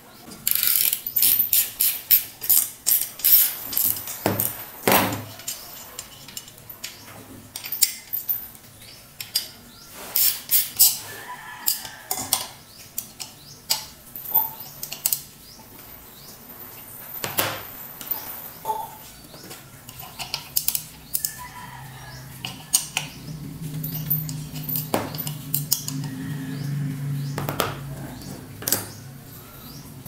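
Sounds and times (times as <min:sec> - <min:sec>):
metal pulley clicking and clinking: 0:00.5 - 0:04.6, 0:23.8 - 0:26.2.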